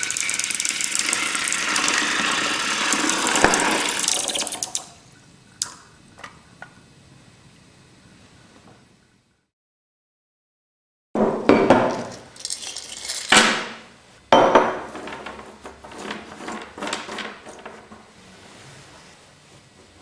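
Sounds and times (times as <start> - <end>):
lead pieces clattering on glass: 11.9 - 13.5.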